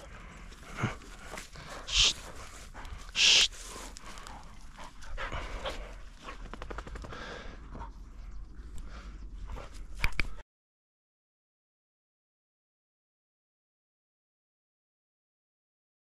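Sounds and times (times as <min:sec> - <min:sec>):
dog panting: 0:00.0 - 0:10.4.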